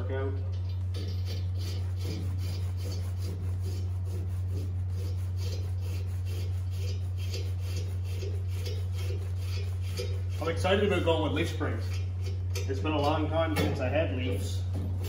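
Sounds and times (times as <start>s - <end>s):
low hum: 0.0s - 15.0s
ratchet wrench rasping: 0.9s - 12.8s.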